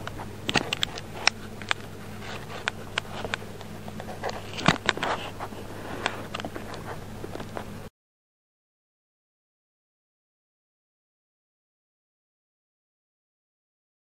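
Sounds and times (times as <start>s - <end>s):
cat biting and licking lens: 0.0s - 7.6s
steady low hum: 0.0s - 7.9s.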